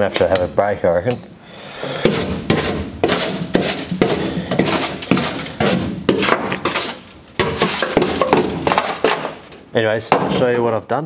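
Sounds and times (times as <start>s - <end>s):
hammer striking sheet metal: 2.0s - 6.8s, 7.4s - 9.4s.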